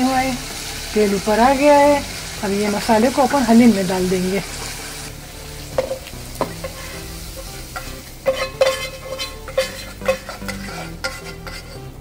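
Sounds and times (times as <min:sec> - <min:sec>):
light sizzle: 0:00.0 - 0:12.0
spatula scraping a saucepan: 0:05.7 - 0:12.0.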